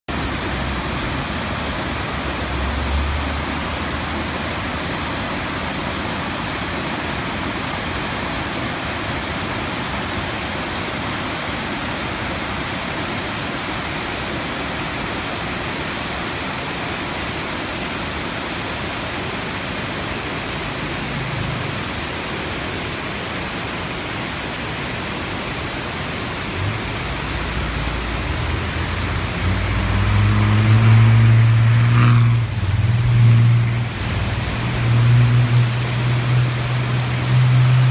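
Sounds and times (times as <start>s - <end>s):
vehicle engine: 0.1s - 5.4s, 20.2s - 22.5s, 26.4s - 37.9s
water rushing over rocks: 0.1s - 37.9s.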